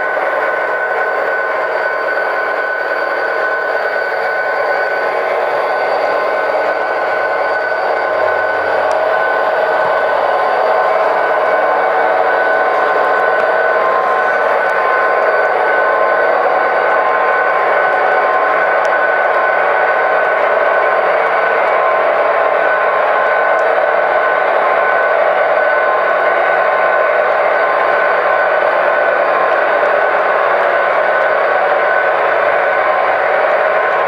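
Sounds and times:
model train cars rolling: 0.0 - 21.9
hum of held tones: 0.0 - 34.0
model diesel engine sound: 3.0 - 25.2.

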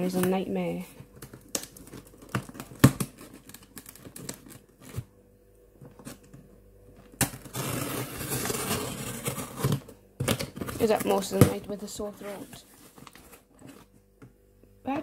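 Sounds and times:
cardboard parcel handled: 1.0 - 5.1, 7.1 - 14.1
tool tearing packing tape: 7.2 - 10.8.

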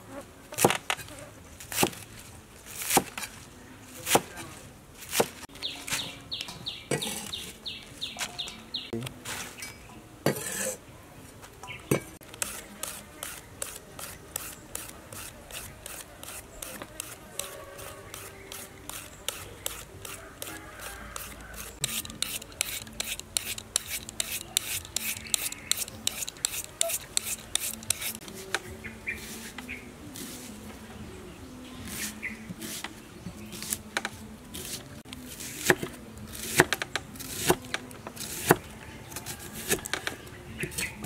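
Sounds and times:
knife cutting vegetables: 12.2 - 28.6, 33.6 - 40.0.

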